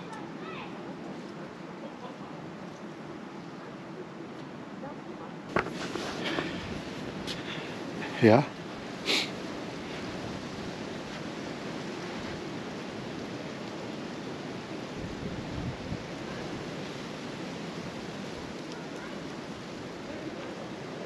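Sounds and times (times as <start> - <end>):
wind: 0.0 - 21.0.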